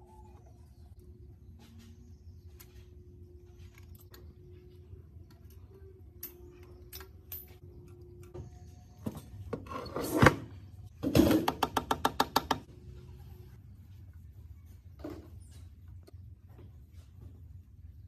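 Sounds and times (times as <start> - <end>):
tools clicking on metal: 5.3 - 8.3.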